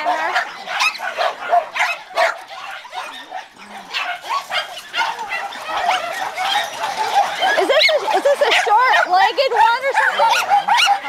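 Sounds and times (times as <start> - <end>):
dogs barking and yipping: 0.0 - 11.0.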